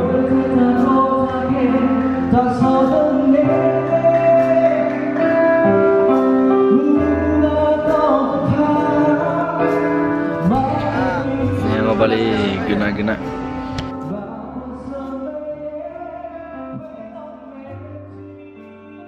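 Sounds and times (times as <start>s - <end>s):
person singing: 0.0s - 13.3s
held keyboard chords: 0.0s - 19.0s
bass line: 6.9s - 16.6s.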